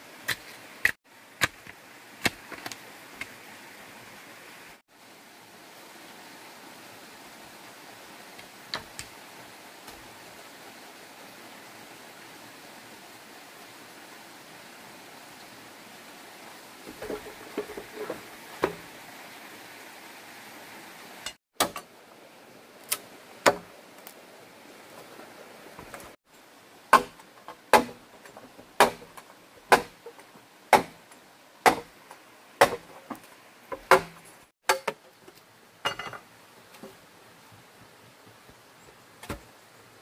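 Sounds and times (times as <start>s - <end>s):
machete chopping bamboo: 0.3s - 2.8s, 21.6s - 21.8s, 22.9s - 23.7s, 26.9s - 28.0s, 28.8s - 30.1s, 30.7s - 31.0s, 31.6s - 32.0s, 32.6s - 32.9s, 33.7s - 35.0s.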